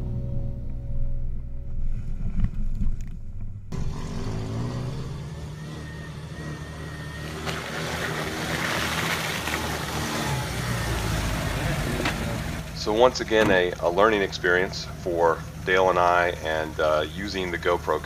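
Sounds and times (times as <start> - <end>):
background music: 0.0 - 2.4
car engine driving: 0.0 - 18.0
water splashing: 6.9 - 12.7
tyres hissing on mud: 7.2 - 12.6.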